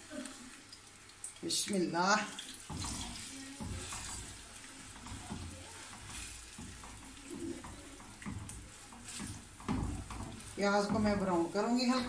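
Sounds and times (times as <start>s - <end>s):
onions sizzling in hot oil: 0.0s - 12.0s
spatula scraping pan: 2.4s - 12.0s.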